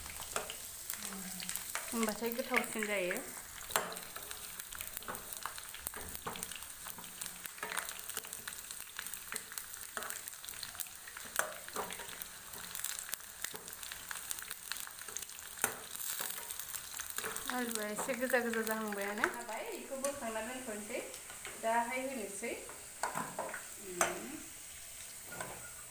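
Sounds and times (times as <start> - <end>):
potatoes sizzling in hot oil: 0.0 - 25.9
ladle scraping and knocking pan: 25.2 - 25.8.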